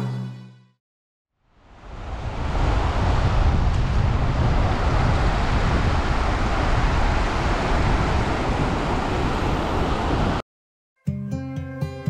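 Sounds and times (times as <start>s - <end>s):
wind buffeting microphone: 1.6s - 10.4s
sea washing on reef: 1.8s - 10.4s.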